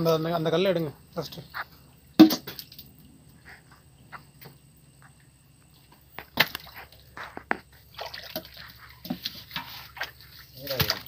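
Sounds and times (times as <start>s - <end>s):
stones knocking and scraping: 6.1s - 7.8s, 8.4s - 11.0s.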